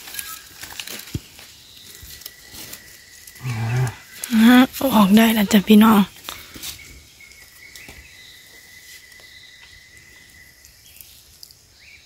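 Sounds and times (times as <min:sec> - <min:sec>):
high-pitched insect drone: 0:01.6 - 0:06.2.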